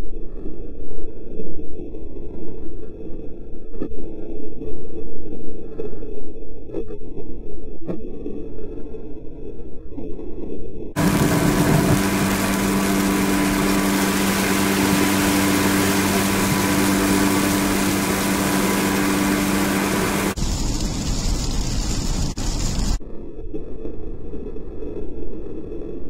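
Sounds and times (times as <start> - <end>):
car engine hum: 11.0 - 21.2
road noise inside car: 11.0 - 23.0.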